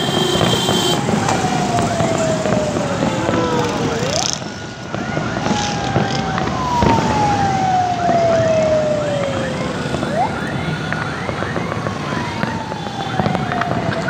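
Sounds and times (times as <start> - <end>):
firework bangs: 0.0 - 14.0
rising firework whistles: 0.0 - 14.0
long falling tone: 1.1 - 10.6.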